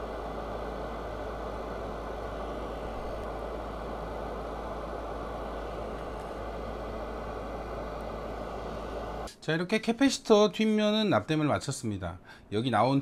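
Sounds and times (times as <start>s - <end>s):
droning machine noise: 0.0s - 9.3s
constant low hum: 0.0s - 12.6s.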